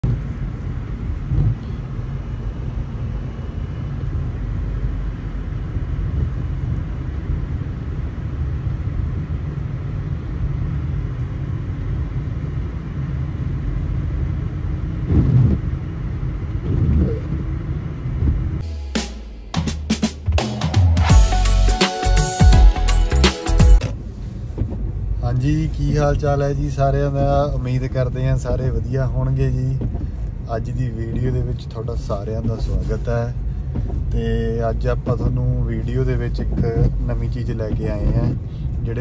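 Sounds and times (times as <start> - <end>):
car engine and tyres rumbling: 0.0 - 18.6, 23.8 - 39.0
car bumps: 29.3 - 39.0.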